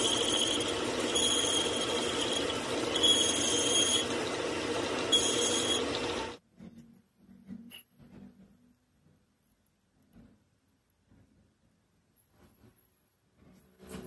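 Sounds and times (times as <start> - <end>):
cutting tool squealing against steel: 0.0 - 6.3
metal lathe running: 0.0 - 6.4.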